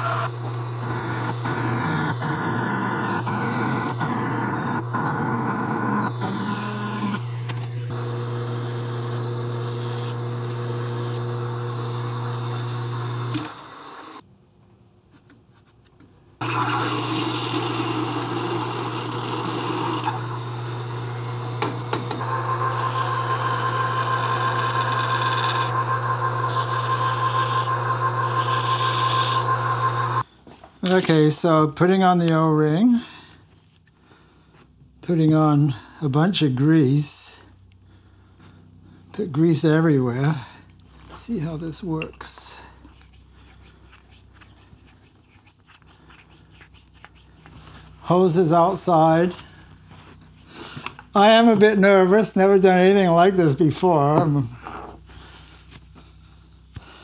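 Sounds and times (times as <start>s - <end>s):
drill cutting into steel: 0.0s - 14.2s, 16.4s - 30.3s
lathe motor hum: 0.0s - 14.2s, 16.4s - 30.2s.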